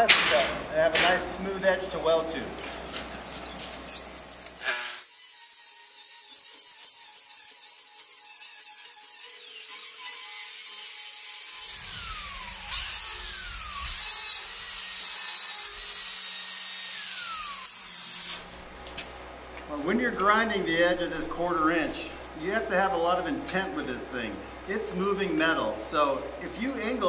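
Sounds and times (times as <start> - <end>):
angle grinder grinding steel: 2.8 - 18.5.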